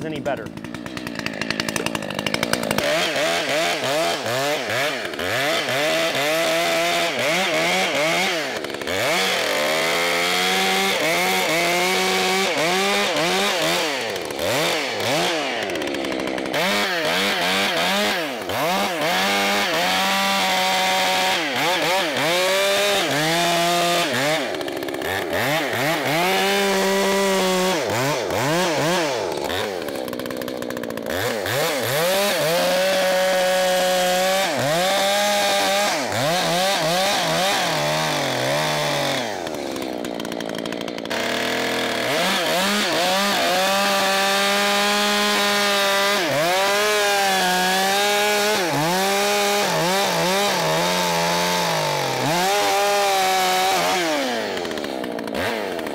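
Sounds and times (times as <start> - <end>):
chainsaw cutting wood: 0.0 - 55.9.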